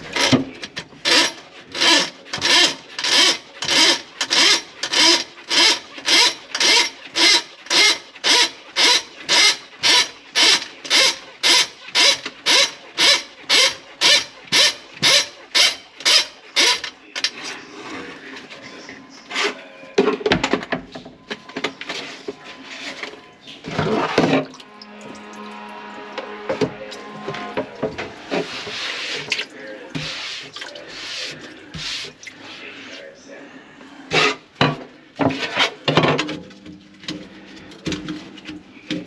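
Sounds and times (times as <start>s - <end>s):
rhythmic scraping strokes: 21.9s - 33.2s.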